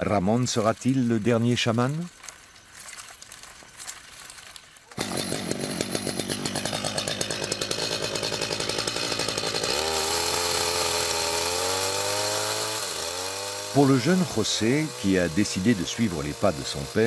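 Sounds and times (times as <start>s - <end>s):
chainsaw engine revving: 4.9s - 17.0s.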